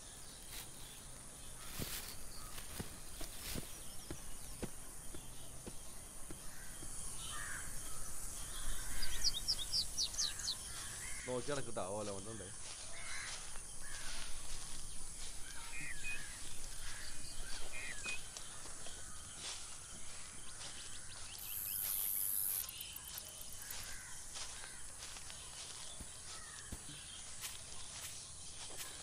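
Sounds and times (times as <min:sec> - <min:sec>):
birds calling: 0:00.0 - 0:29.0
high drone of insects: 0:00.0 - 0:29.0
loud high insect buzz: 0:12.6 - 0:25.3.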